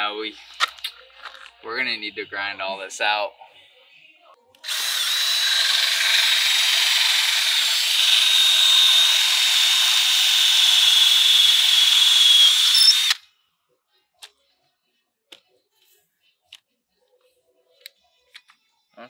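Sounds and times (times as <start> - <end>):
cordless drill whining: 4.6 - 13.2.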